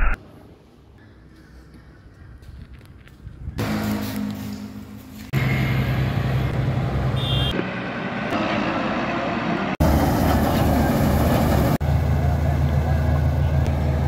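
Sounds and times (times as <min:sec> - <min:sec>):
combine harvester diesel engine: 0:03.6 - 0:14.0.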